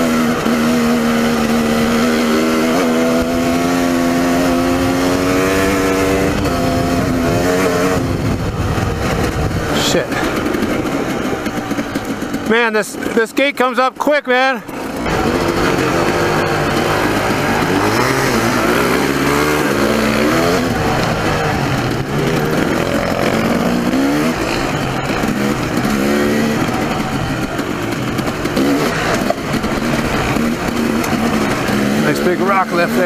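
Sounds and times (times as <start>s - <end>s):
dirt bike engine revving: 0.0s - 33.0s
wind on microphone: 4.8s - 11.7s.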